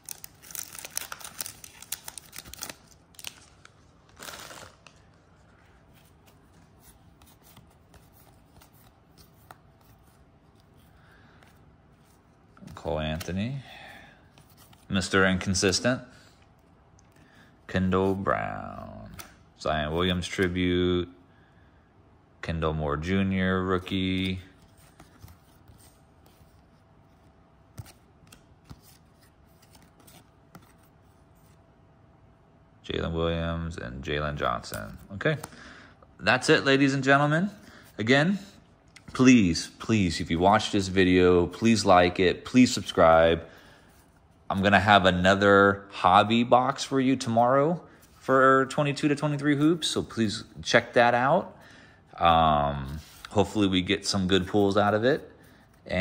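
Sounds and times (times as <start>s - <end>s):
wrapper tearing: 0.0s - 5.1s
wrapper rustling and crinkling: 0.0s - 5.4s
faint handling of cards: 0.0s - 20.8s, 23.5s - 32.0s, 34.0s - 56.0s
trading cards flipped by hand: 5.9s - 13.4s, 24.2s - 31.6s.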